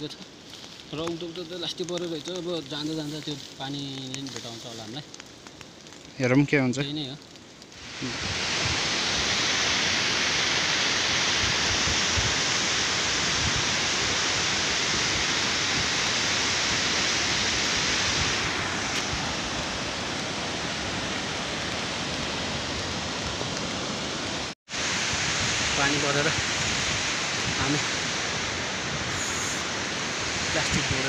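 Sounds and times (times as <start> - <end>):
stream rushing over rocks: 7.8 - 31.0.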